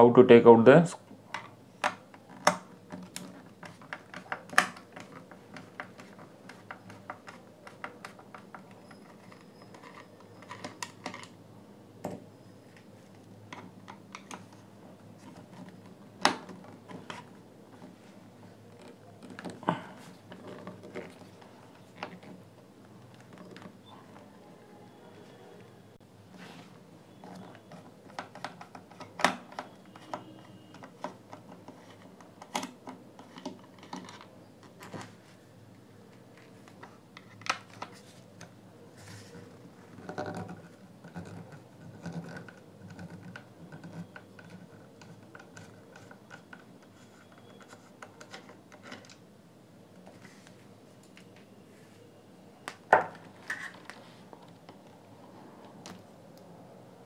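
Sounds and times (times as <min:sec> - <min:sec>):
screwdriver scratching on plastic: 0:05.0 - 0:11.3, 0:39.9 - 0:49.0.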